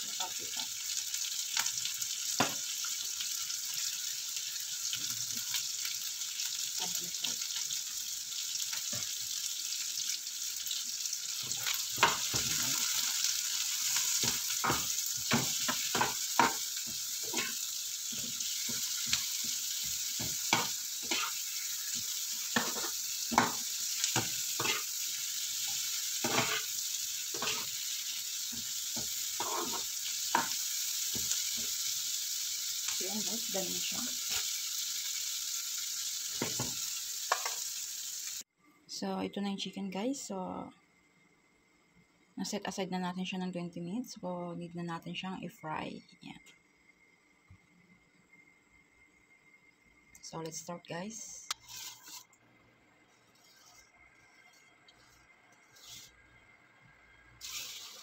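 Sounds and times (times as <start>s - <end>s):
onion rings sizzling in a pan: 0.0s - 38.5s, 48.0s - 52.4s, 53.1s - 58.0s
metal utensil scraping a pan: 13.8s - 19.2s, 20.2s - 27.9s, 28.5s - 31.7s, 51.6s - 52.3s.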